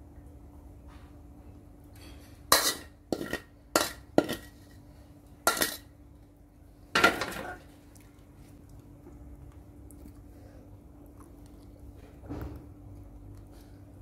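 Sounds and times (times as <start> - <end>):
utensil scraping a plate: 2.0 - 4.8.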